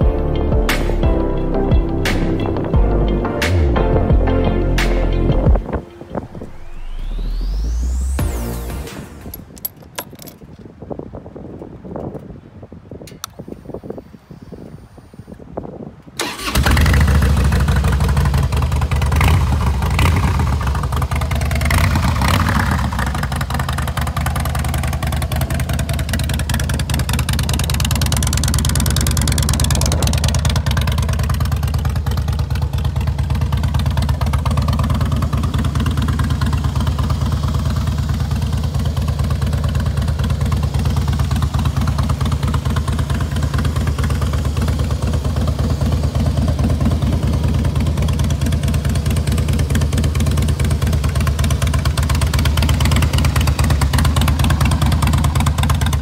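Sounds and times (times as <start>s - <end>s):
motorcycle engine idling: 16.2s - 56.0s.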